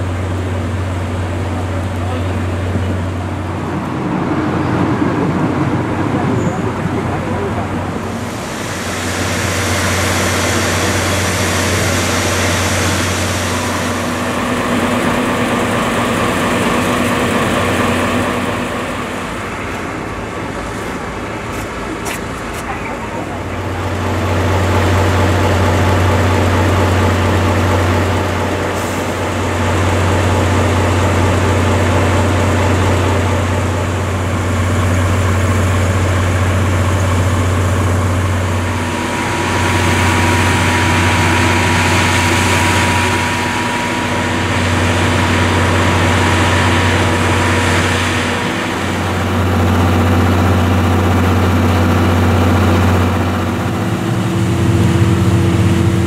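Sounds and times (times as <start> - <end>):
diesel engine idling: 0.0 - 56.0
hiss: 8.1 - 14.3.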